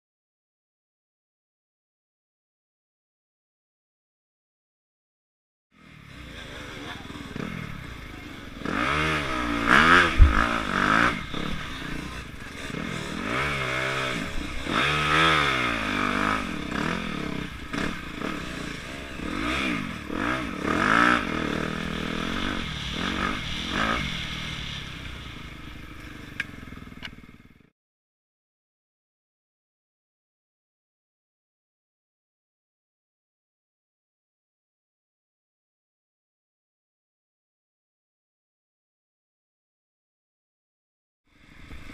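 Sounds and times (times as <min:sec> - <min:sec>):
dirt bike engine revving: 0:05.8 - 0:27.7
bike rattling: 0:06.2 - 0:27.5.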